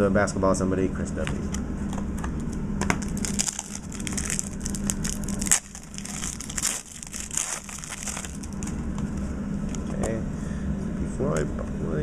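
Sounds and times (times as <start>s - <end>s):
plastic wrapper crinkling: 3.0s - 8.8s.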